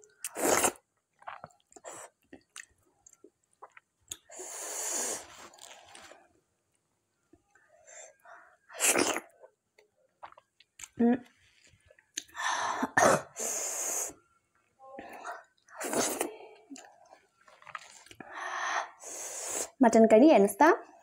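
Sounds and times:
food going into mouth: 0:00.0 - 0:02.7, 0:08.8 - 0:09.3
mouth clicks of chewing: 0:02.3 - 0:04.3.

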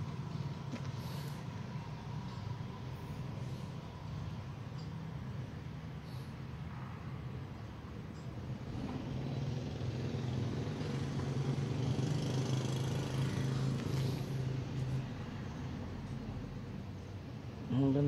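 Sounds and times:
vehicle engine passing by: 0:08.4 - 0:16.9.

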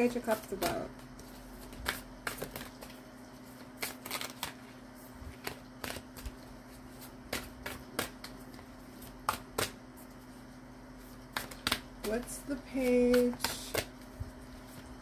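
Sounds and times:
cards being shuffled: 0:00.1 - 0:10.4, 0:11.0 - 0:15.0.

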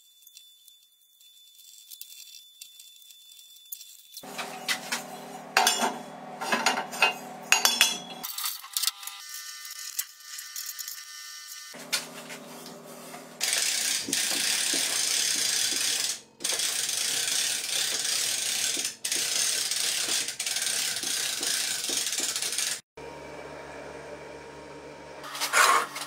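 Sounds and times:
ratchet wrench clicking: 0:13.4 - 0:22.8.

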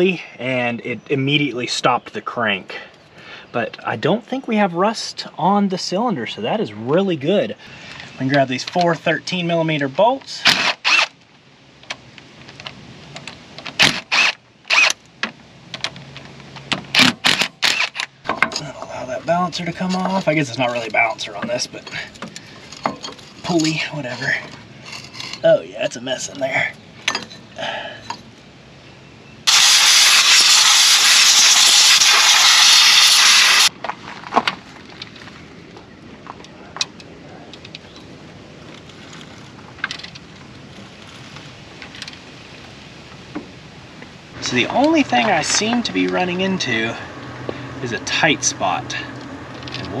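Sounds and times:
compressed air hissing: 0:29.5 - 0:33.7.

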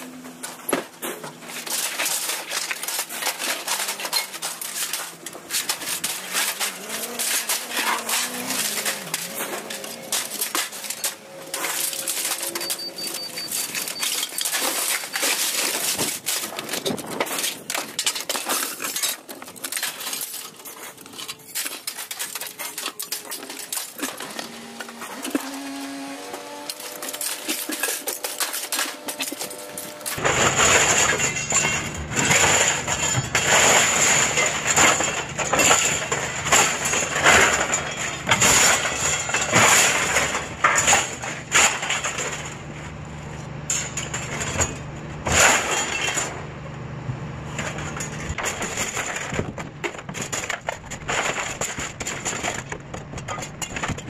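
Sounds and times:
scrap metal clattering: 0:00.0 - 0:46.5, 0:47.5 - 0:54.0
low rumble with high whine: 0:29.7 - 0:54.0.

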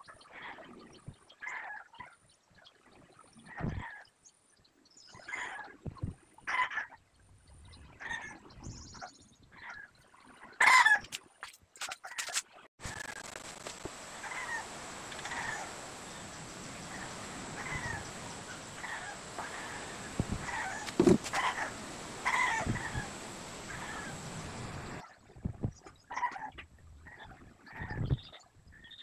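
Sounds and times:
steady hiss: 0:12.8 - 0:25.0
animal calling: 0:14.1 - 0:25.0.

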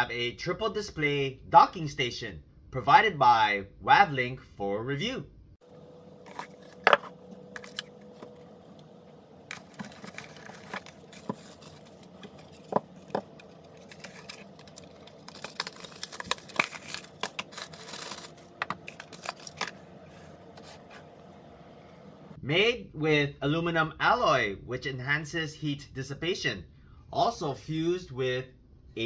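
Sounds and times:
cardboard handling on table: 0:06.2 - 0:08.8, 0:09.5 - 0:21.2
papery rustling: 0:06.2 - 0:08.8, 0:09.4 - 0:21.2.

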